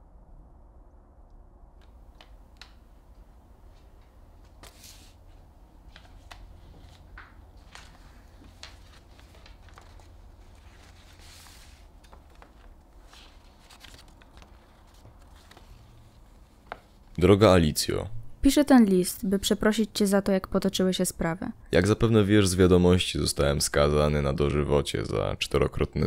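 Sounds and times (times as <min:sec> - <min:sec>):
low room hum: 0:00.0 - 0:26.0
paper rustling and crackling: 0:03.7 - 0:17.2.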